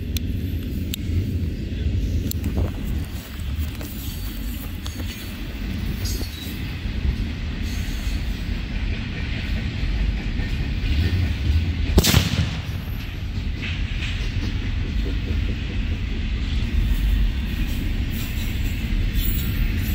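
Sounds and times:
freight train rumbling: 0.0 - 19.9
firecracker bang: 12.0 - 13.4.

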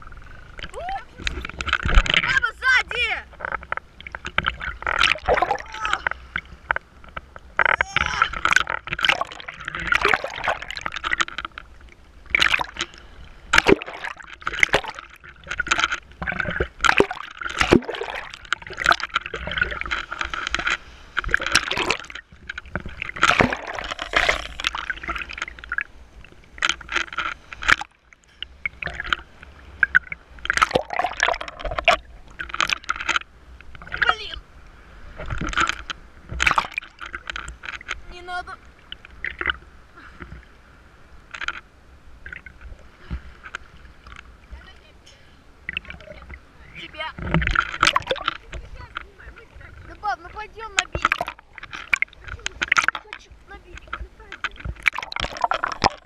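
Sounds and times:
sea water splashing and gurgling: 0.0 - 56.0.

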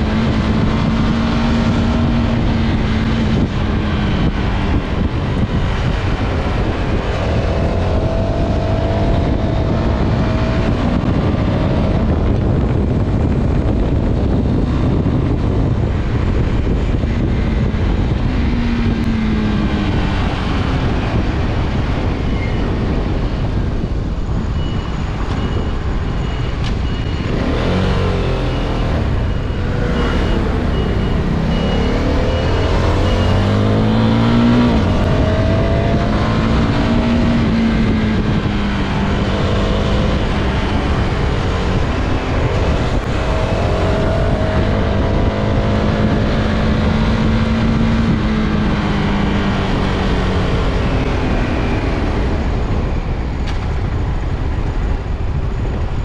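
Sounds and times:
road and wind noise: 0.0 - 56.0
motorcycle engine revving: 27.0 - 54.2.

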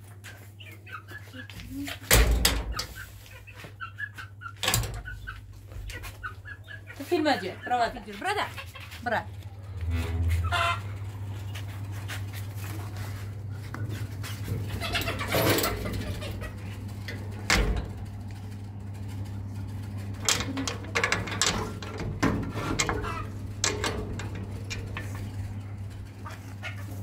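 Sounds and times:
steady low hum: 1.3 - 27.0
knocks and scrapes: 9.6 - 25.6.

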